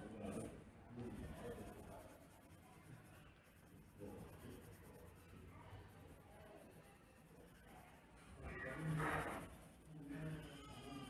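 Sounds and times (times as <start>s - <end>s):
pencil scratching on paper: 0.2s - 11.0s.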